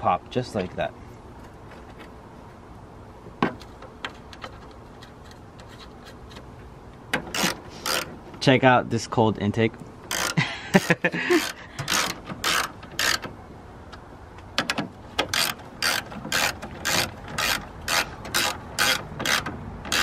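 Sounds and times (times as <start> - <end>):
ratchet wrench clicking: 7.3 - 8.1, 10.1 - 10.4, 11.4 - 13.2, 15.2 - 20.0.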